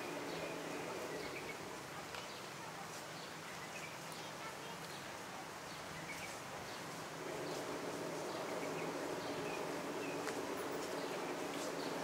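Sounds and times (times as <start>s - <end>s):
low buzzing drone: 7.2s - 12.0s.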